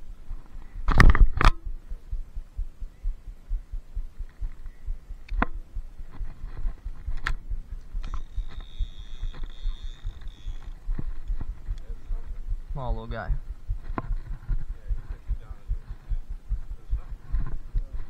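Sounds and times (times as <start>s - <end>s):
scattered clicks: 7.0s - 12.0s.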